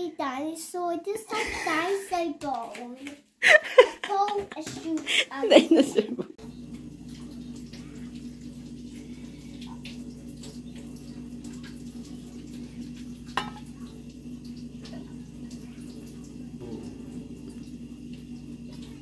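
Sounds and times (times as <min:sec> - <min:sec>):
steady low hum: 0:03.9 - 0:19.0
bowl clinking: 0:13.3 - 0:13.7.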